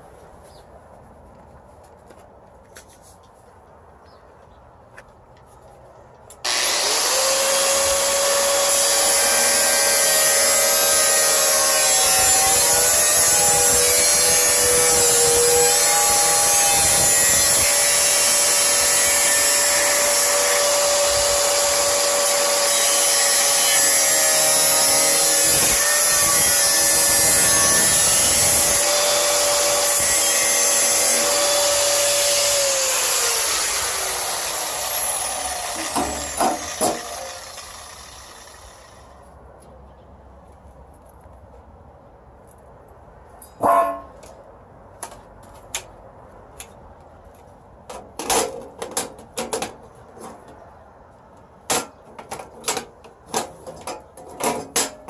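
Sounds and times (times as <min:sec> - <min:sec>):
angle grinder cutting steel: 0:06.4 - 0:39.2.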